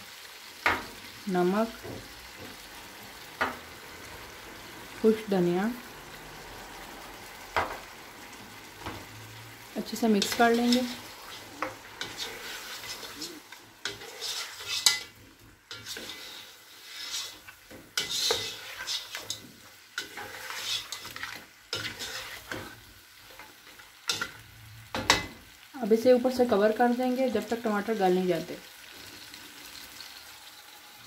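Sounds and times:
meat sizzling in a wok: 0.0 - 31.0
spatula scraping the pan: 9.9 - 25.5.

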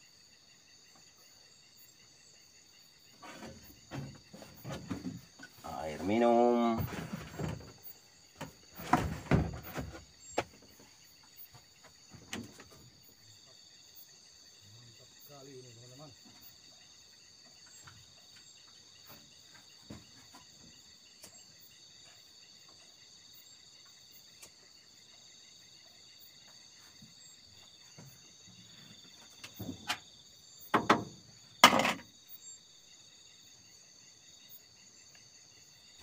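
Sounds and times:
crickets chirring: 0.0 - 36.0
handling knocks and rustling: 3.2 - 12.9.

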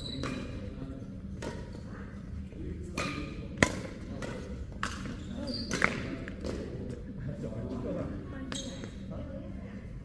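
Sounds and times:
racket striking shuttlecock: 2.9 - 5.1.

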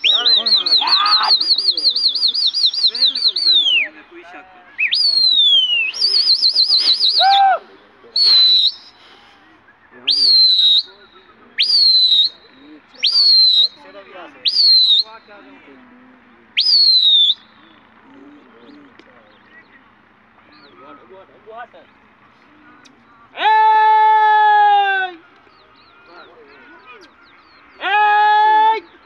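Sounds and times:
piercing human whistles: 0.0 - 3.9, 4.8 - 7.6, 8.2 - 9.1, 10.1 - 11.0, 11.6 - 13.8, 14.4 - 15.1, 16.6 - 17.6
warbling whistle trill: 4.8 - 7.5, 8.2 - 9.0, 11.6 - 13.8, 14.4 - 15.1, 16.6 - 17.5.

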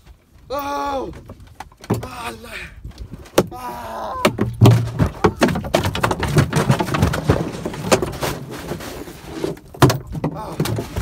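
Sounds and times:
person shouting: 0.5 - 1.2, 3.5 - 4.4.

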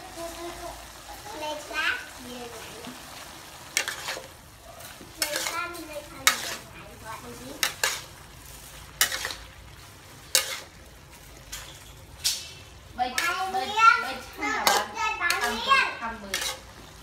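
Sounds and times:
food sizzling in wok: 0.0 - 17.0
spatula scraping and clanking wok: 3.1 - 17.0.

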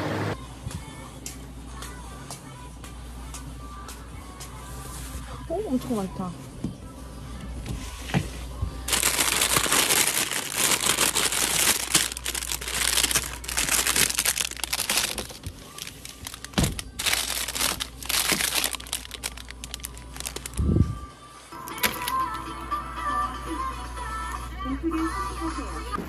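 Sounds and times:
plastic packaging crinkling: 8.9 - 20.7, 21.6 - 22.4.

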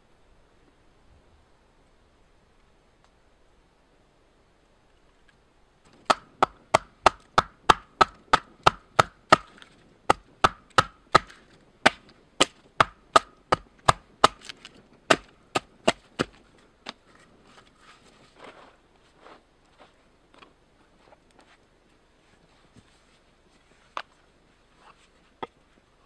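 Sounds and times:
axe chopping log: 5.9 - 16.4.

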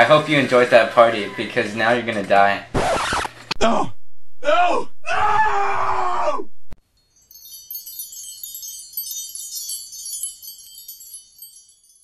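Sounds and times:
tinkling wind chime shimmer: 6.8 - 12.0.

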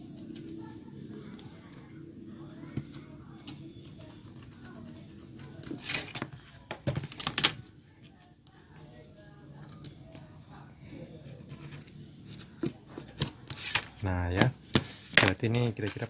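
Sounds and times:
low steady background hum: 0.0 - 16.0
steel ruler scraping and knocking: 11.2 - 14.0.

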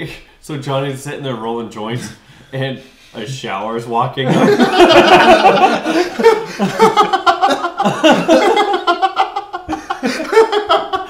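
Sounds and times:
men laughing: 4.2 - 11.0.

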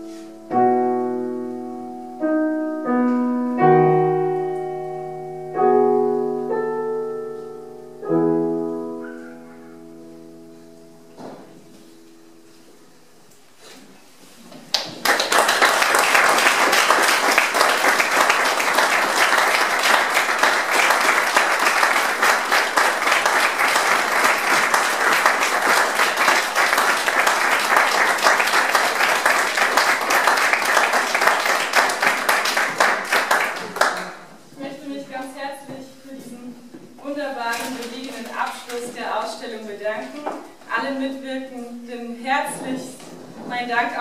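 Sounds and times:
audience applauding: 14.7 - 34.3.

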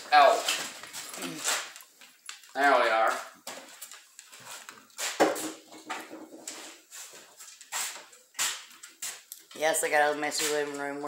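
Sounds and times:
objects knocking when set down: 5.1 - 6.6.

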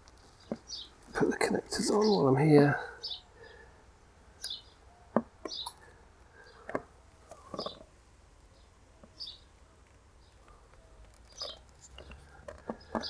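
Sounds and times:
bird chirps: 0.4 - 1.0, 3.0 - 3.6, 4.4 - 7.9, 8.5 - 9.5, 10.2 - 13.0.

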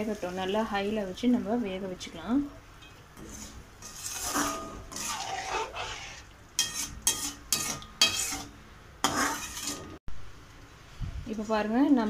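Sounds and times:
metal spoon scraping a wok: 3.2 - 10.0.

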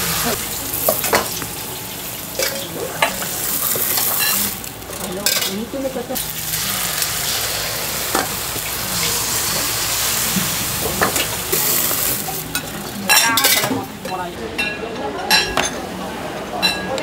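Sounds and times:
food sizzling in a wok: 0.0 - 14.3.

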